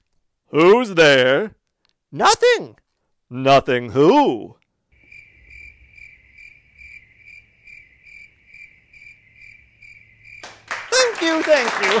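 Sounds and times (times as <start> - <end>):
cricket chirping: 4.9 - 11.1.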